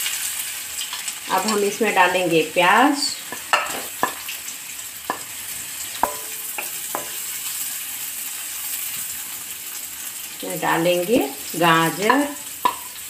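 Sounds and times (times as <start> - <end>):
onions sizzling in hot oil: 0.0 - 13.0
spatula knocking pan: 3.2 - 4.4, 5.0 - 7.5, 11.7 - 13.0.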